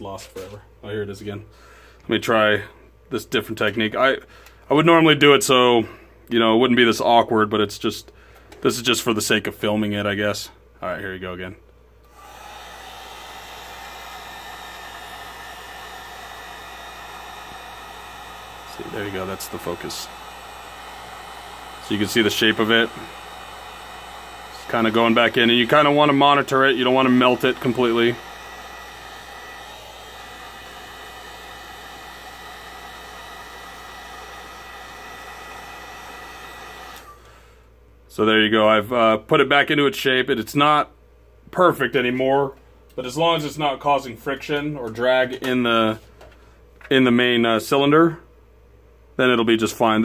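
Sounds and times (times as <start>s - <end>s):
fan whine: 12.0s - 37.6s
heat gun blowing hot air: 12.1s - 37.4s.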